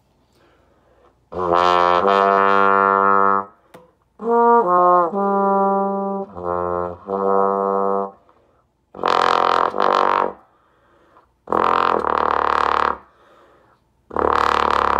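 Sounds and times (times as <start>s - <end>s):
muted bass trombone notes: 1.3s - 3.6s, 4.2s - 8.2s, 8.9s - 10.4s, 11.5s - 13.0s, 14.1s - 14.9s.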